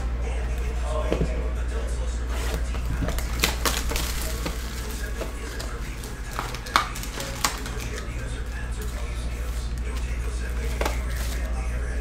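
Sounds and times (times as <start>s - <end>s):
cardboard box rustling and crackling: 2.4s - 7.9s.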